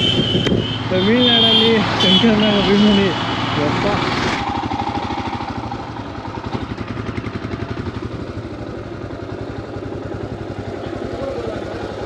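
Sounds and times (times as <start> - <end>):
motorcycle engine idling: 4.4 - 12.0.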